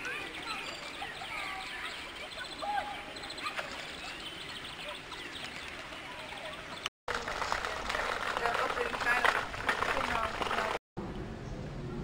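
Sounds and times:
birds chirping: 0.0s - 6.9s.

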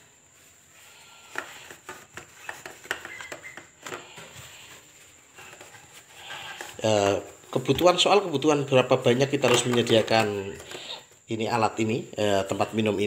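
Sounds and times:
plastic cups clicking: 1.3s - 4.3s, 8.7s - 11.1s.

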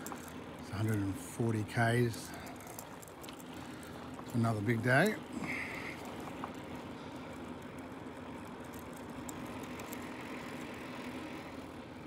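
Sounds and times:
bicycle tyres rolling on road: 0.0s - 12.0s.

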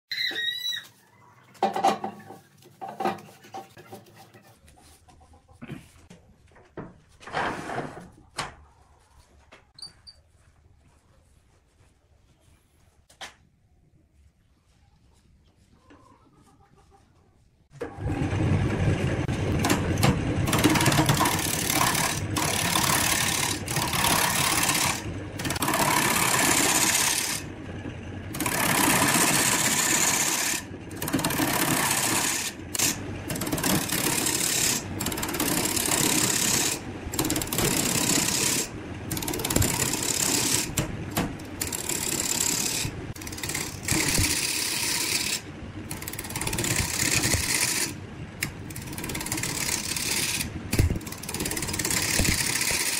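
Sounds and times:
turning tool scraping wood: 1.6s - 4.7s, 19.3s - 27.5s, 28.3s - 52.9s
lathe motor running: 18.0s - 52.9s.

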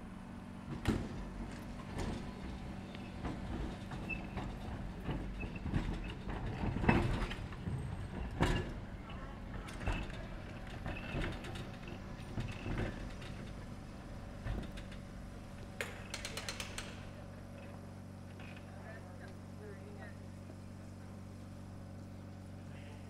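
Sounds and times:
electric tram humming: 0.0s - 23.0s
tram knocking: 0.6s - 17.2s
creaks: 2.9s - 13.7s, 14.4s - 18.8s.

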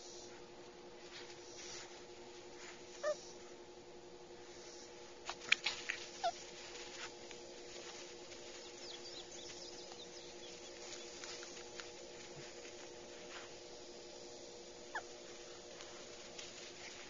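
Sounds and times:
faint steady hum: 0.0s - 17.0s
puppy yipping: 3.0s - 3.2s.

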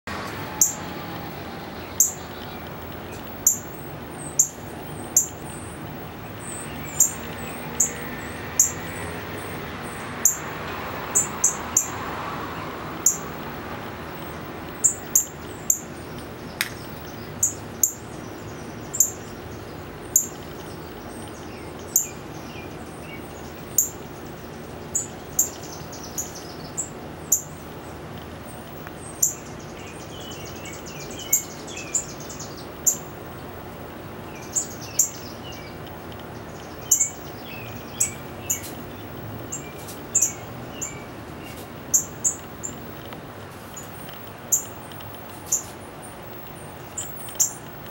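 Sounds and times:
faint bird twittering: 34.2s - 47.7s.

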